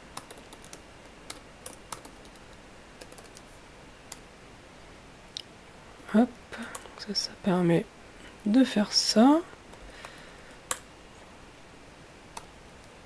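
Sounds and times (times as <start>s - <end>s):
computer keyboard typing: 0.2s - 3.5s.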